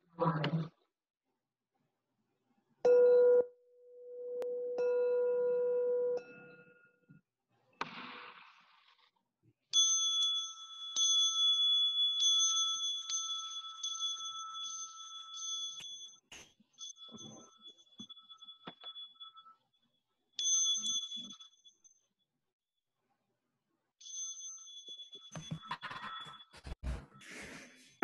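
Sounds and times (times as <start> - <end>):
low bell tone: 9.8 - 16.2, 16.8 - 19.8, 20.4 - 22.0
high-pitched bell struck repeatedly: 9.8 - 19.7, 20.4 - 22.0, 24.0 - 26.7.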